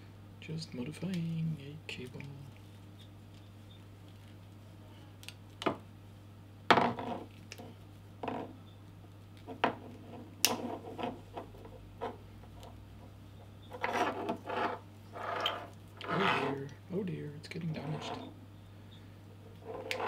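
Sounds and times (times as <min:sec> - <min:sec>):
cable rubbing and scraping: 0:13.7 - 0:16.7, 0:17.6 - 0:18.4, 0:19.5 - 0:20.0.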